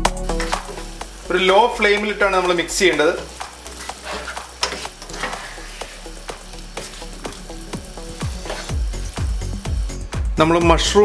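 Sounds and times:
food frying: 0.0s - 10.4s
background music with bass: 0.0s - 11.0s
spatula scraping a pan: 3.0s - 9.2s.

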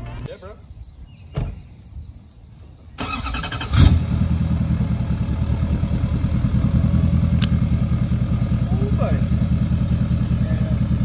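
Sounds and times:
diesel engine starting and idling: 3.0s - 11.0s.

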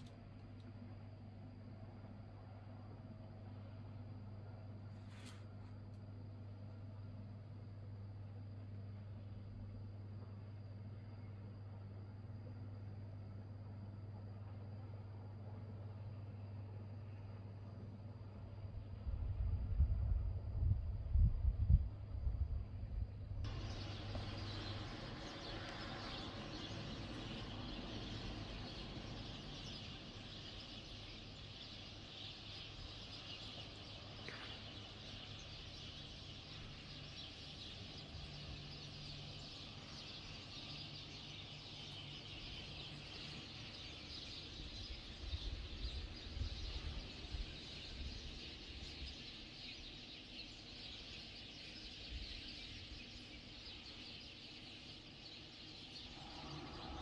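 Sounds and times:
small birds chirping: 23.5s - 57.0s.

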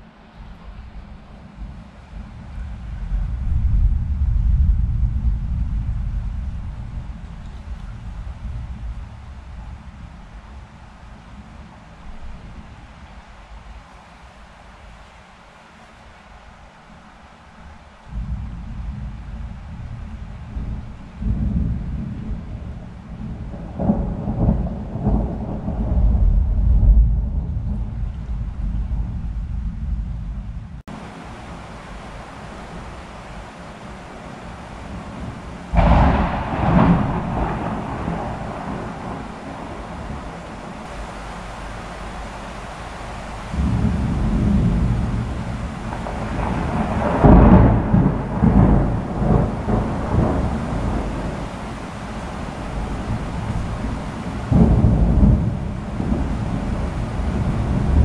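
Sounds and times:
low rolling thunder rumble: 0.2s - 14.9s, 17.9s - 58.0s
crackling thunder peal: 18.2s - 31.0s, 34.5s - 42.3s, 43.0s - 58.0s.

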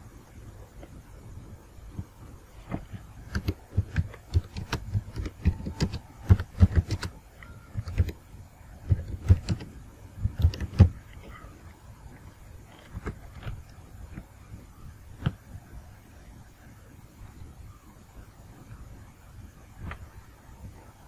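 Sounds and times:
computer keyboard typing: 2.7s - 8.2s, 8.8s - 11.4s.

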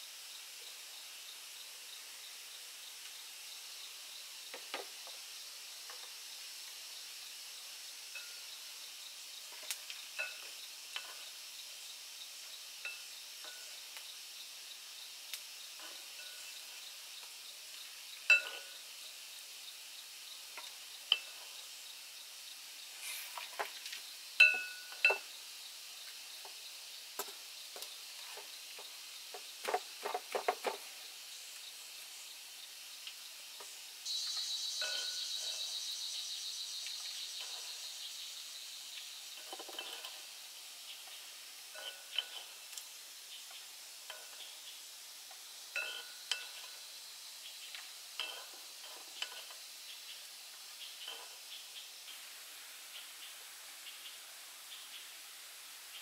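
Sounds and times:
faint steady sizzle: 0.0s - 56.0s
metal utensils scraping a pan: 18.3s - 18.8s, 39.4s - 40.3s, 41.7s - 42.6s, 45.8s - 46.8s, 48.2s - 49.6s.

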